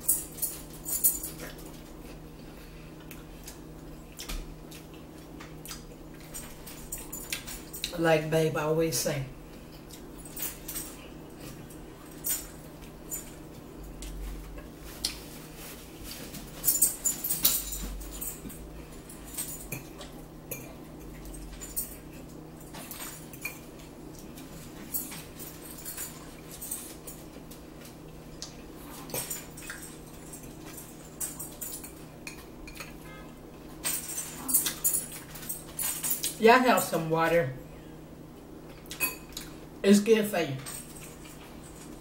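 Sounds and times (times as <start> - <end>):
steady low hum: 0.0 - 42.0
chewing and lip smacking: 3.0 - 6.3.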